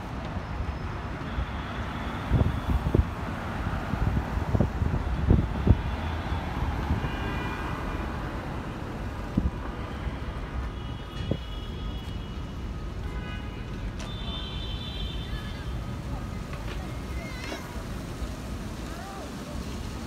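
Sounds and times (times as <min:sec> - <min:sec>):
city street traffic passing: 0:00.0 - 0:20.0
wind rumble on microphone: 0:02.1 - 0:07.5, 0:08.1 - 0:10.0.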